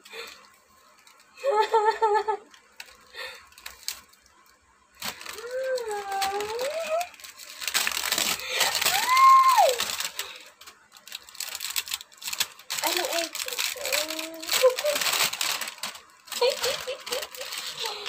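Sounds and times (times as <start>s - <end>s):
wrapping paper crinkling: 0.1s - 18.0s.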